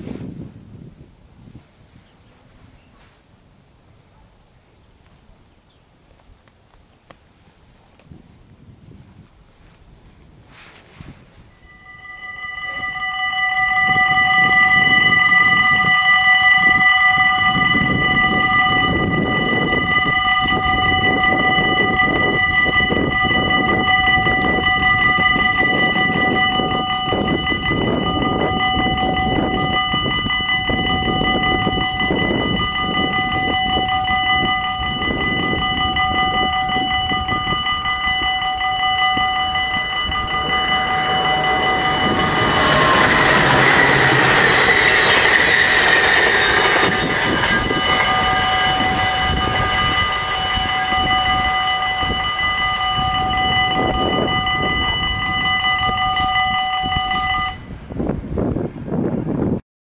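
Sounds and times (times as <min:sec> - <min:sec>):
approaching train: 0:09.2 - 0:59.6
level crossing bells ringing: 0:11.6 - 0:57.8.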